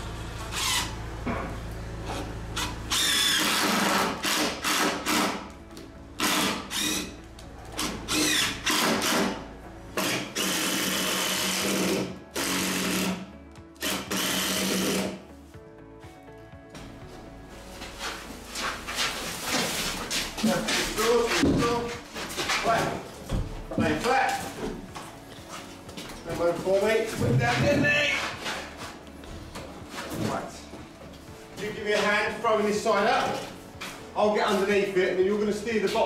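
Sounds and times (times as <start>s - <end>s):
impact driver driving screws: 2.6s - 5.4s, 6.2s - 7.1s, 7.8s - 9.4s, 13.8s - 15.2s.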